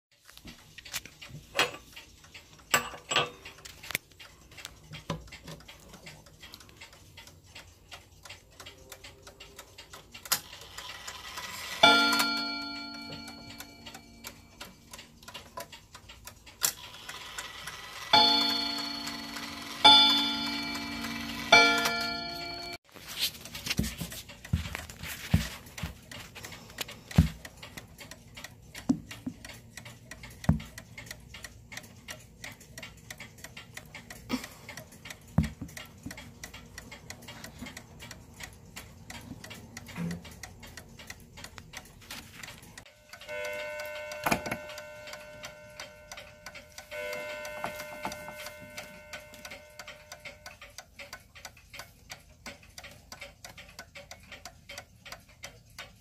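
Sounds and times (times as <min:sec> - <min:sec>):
clock ticking: 0:00.1 - 0:56.0
clock chime rods ringing: 0:10.9 - 0:14.8, 0:17.0 - 0:22.8, 0:42.9 - 0:50.6.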